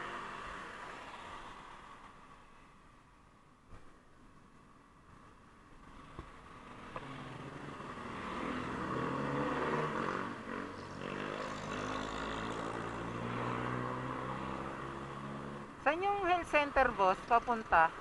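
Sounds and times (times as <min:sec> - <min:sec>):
small motorcycle engine revving: 0:06.7 - 0:15.1.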